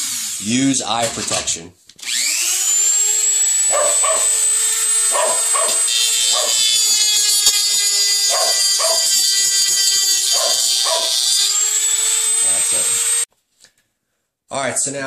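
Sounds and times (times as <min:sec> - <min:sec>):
rotary tool whining: 0:02.0 - 0:13.3
dog barking: 0:03.7 - 0:04.4, 0:05.1 - 0:06.6, 0:08.3 - 0:09.1, 0:10.3 - 0:11.2
cutting disc scoring plastic: 0:03.9 - 0:13.3.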